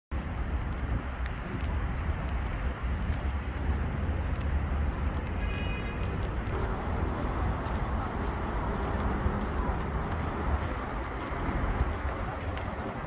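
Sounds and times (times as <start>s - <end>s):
distant traffic: 0.2s - 13.0s
heavy low rumble: 6.4s - 13.0s.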